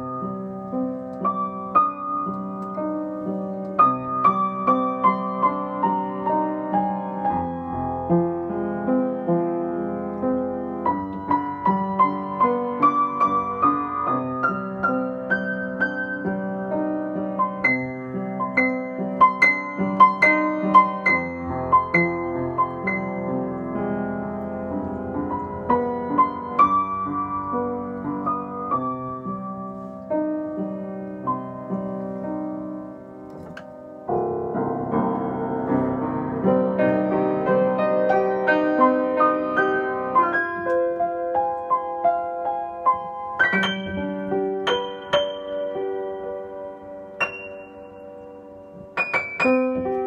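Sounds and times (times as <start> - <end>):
solo piano improvisation: 0.0 - 50.0.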